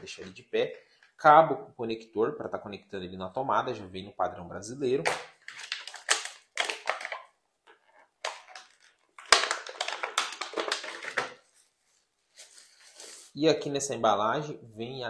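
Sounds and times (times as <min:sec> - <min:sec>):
plastic snapping: 0:05.0 - 0:07.3
plastic packaging crinkling: 0:05.1 - 0:07.3, 0:08.2 - 0:11.7.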